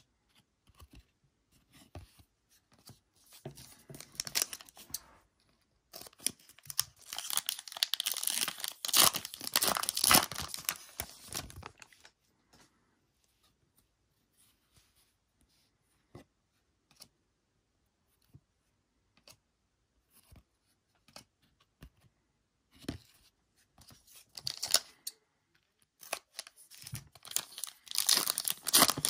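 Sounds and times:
foil wrapper tearing and crinkling: 6.0 - 12.0, 24.4 - 24.8, 26.0 - 29.0.

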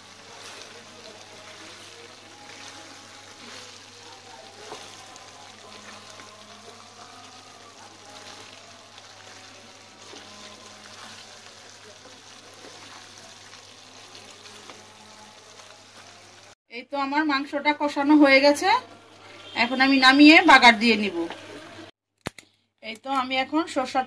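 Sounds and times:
meat sizzling in oil: 0.0 - 16.6.

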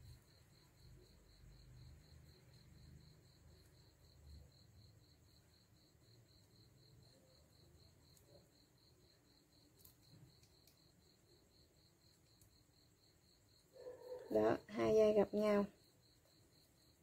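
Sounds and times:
faint ticks: 9.7 - 11.0.

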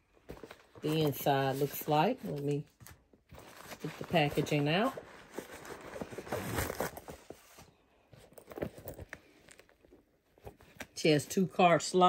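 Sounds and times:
packaging stuffing crinkling: 0.2 - 7.6.

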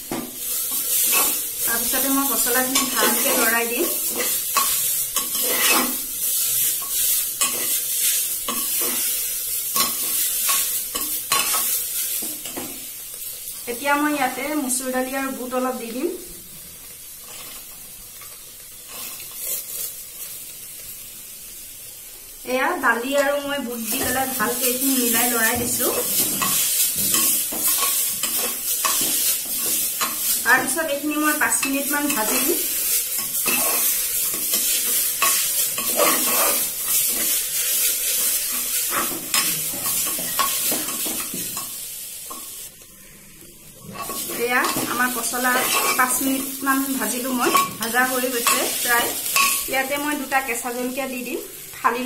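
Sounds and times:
vegetables sizzling in oil: 0.0 - 52.0
metal spoon scraping pot: 4.1 - 6.0, 35.2 - 37.2.

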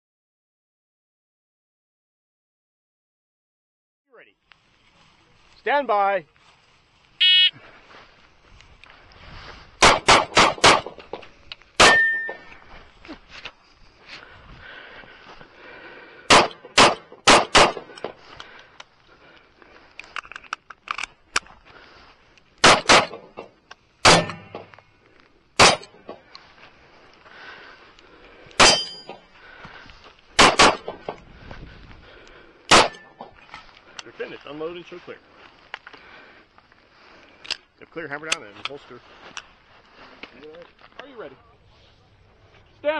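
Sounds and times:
pistol shots: 9.8 - 11.1, 11.8 - 12.3, 16.3 - 18.1, 22.6 - 23.4, 24.0 - 24.7, 25.6 - 26.1, 28.6 - 29.1, 30.4 - 31.1, 32.7 - 33.1.

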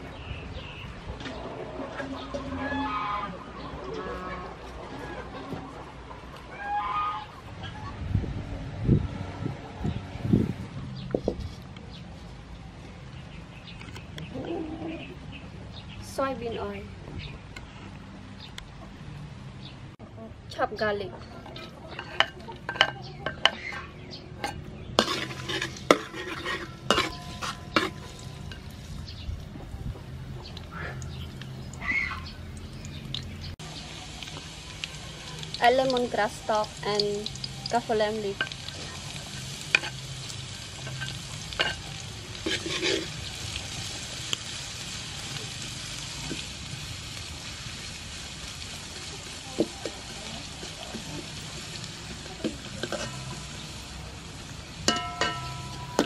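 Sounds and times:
oil sizzling: 20.5 - 56.0
metal spatula scraping wok: 21.4 - 29.1, 37.8 - 44.3, 49.6 - 54.2, 54.8 - 56.0
metal spatula clinking on pan: 21.9 - 23.6, 24.4 - 28.7, 40.8 - 43.1, 54.9 - 56.0.

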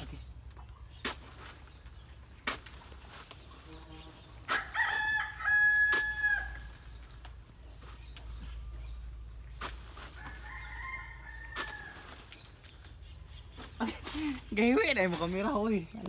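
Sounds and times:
rooster crowing: 4.6 - 6.7, 10.2 - 12.1.

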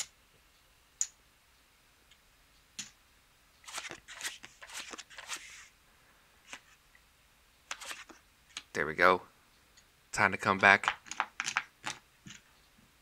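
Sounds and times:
playing cards swishing: 3.7 - 5.7, 7.7 - 8.2.

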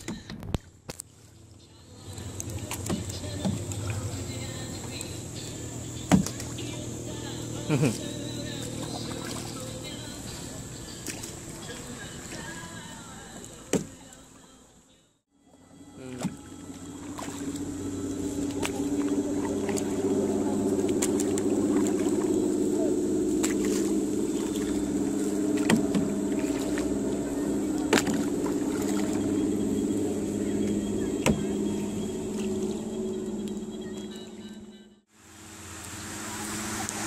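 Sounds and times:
boat motor humming: 0.0 - 37.0.

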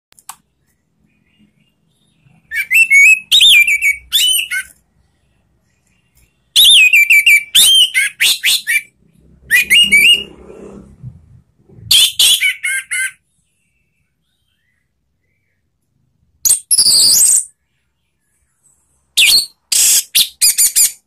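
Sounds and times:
thrush singing whistled notes: 1.0 - 4.7, 6.4 - 10.8.

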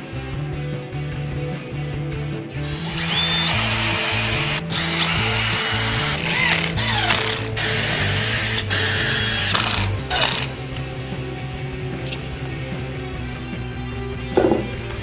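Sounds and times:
background music: 0.0 - 15.0
cordless drill drilling into wood: 2.6 - 10.6
drill whine spinning down: 2.7 - 10.5.

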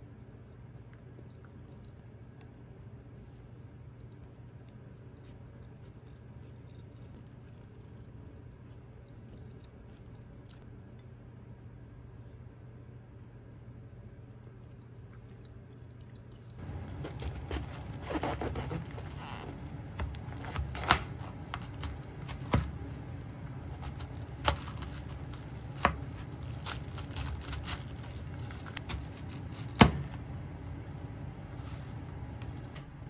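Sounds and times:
faint low hum: 0.0 - 33.0
knife crunching through cabbage: 16.6 - 32.9.

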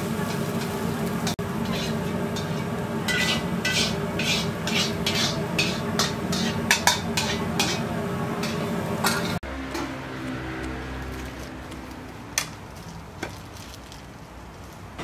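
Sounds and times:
burner hum: 0.0 - 12.6
metal spatula scraping wok: 0.2 - 10.0.

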